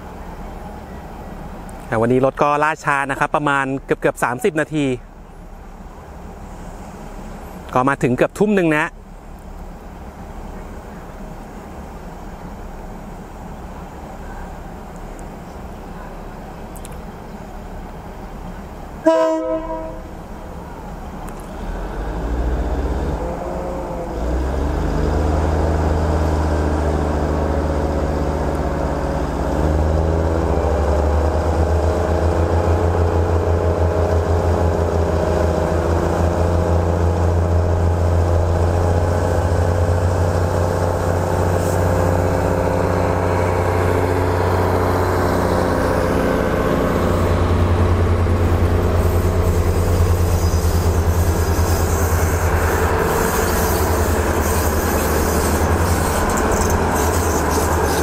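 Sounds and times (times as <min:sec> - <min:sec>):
diesel railcar engines droning: 0:00.0 - 0:58.0.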